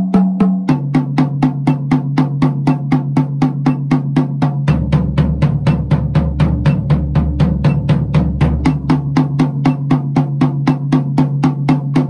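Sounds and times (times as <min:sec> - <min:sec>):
drum strokes on snare and toms: 0:00.0 - 0:12.0
floor tom ringing: 0:04.6 - 0:10.1.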